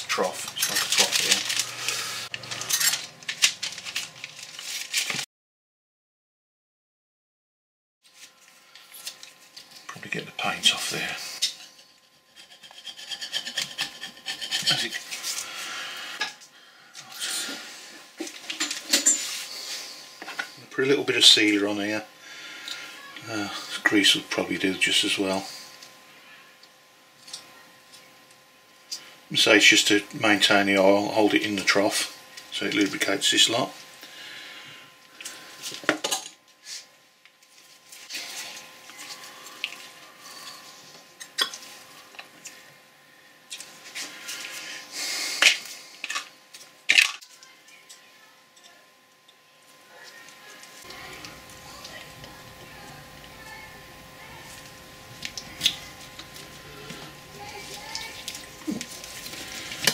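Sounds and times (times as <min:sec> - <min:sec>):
hand tool scraping paint: 0:12.3 - 0:15.4.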